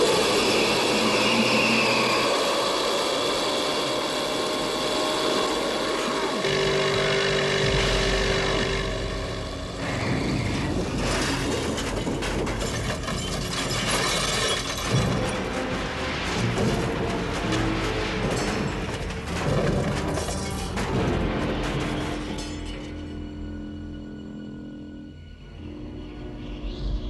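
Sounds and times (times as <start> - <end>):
orchestral music: 0.0 - 11.6
vehicle engine running: 3.2 - 11.1
crashing clattering impacts: 6.5 - 23.1.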